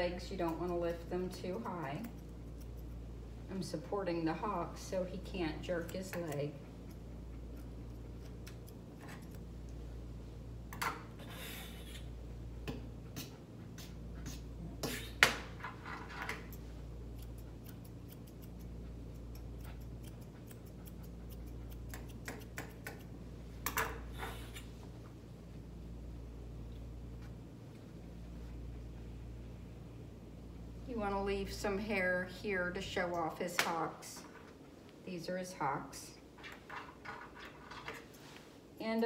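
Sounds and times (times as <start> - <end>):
grooming shears snipping: 0.0 - 3.1, 5.4 - 9.8, 12.7 - 23.2.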